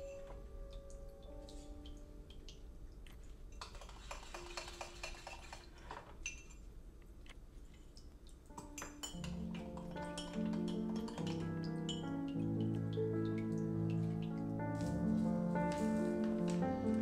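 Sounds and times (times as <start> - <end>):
whisk clinking against glass: 8.6 - 12.1.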